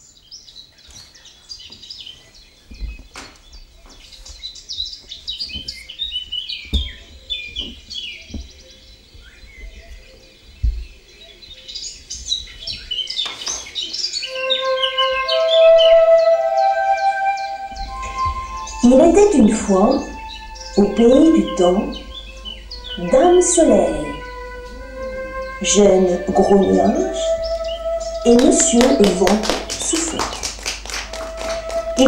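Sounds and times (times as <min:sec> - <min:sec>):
birds chirping: 0:00.0 - 0:32.0
dull low thumps: 0:05.1 - 0:11.1, 0:17.6 - 0:30.0
held musical notes: 0:14.2 - 0:32.0.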